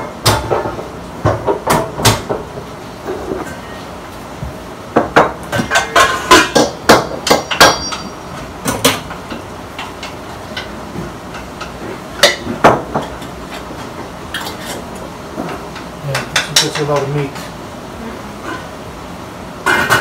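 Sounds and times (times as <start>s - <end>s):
metal cookware clanking: 5.6s - 17.2s.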